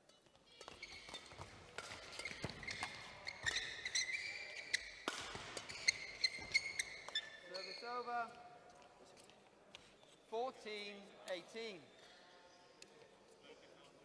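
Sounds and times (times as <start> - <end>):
racket hitting shuttlecock: 0.1 - 4.0, 4.8 - 7.2
shoes squeaking on court: 0.1 - 10.3.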